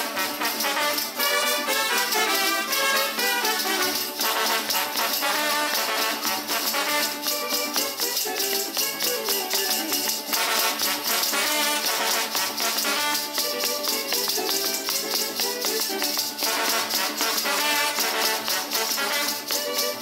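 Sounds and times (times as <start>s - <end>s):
brass band playing dance tune: 0.0s - 20.0s
leg bells jingling: 0.0s - 20.0s.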